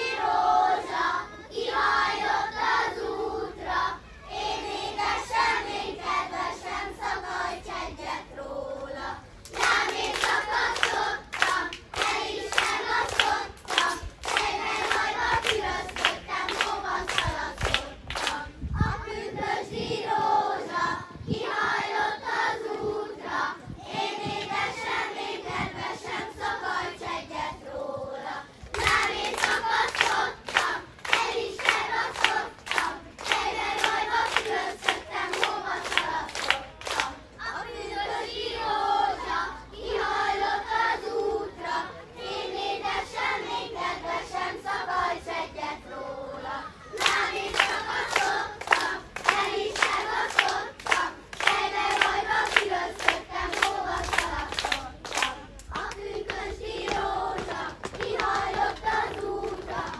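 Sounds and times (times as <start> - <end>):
children singing: 0.0 - 17.4
rhythmic hand claps: 9.4 - 18.4, 28.8 - 37.2, 46.9 - 59.9.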